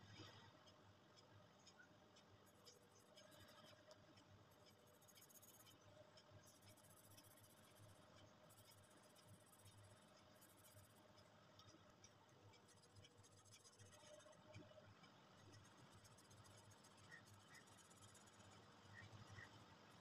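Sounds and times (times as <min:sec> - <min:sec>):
pen scratching on paper: 0:08.5 - 0:11.0, 0:15.4 - 0:19.5.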